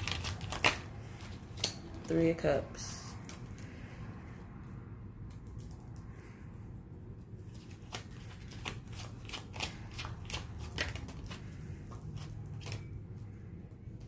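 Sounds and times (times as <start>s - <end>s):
cards being shuffled: 0.0s - 2.1s, 7.2s - 13.1s.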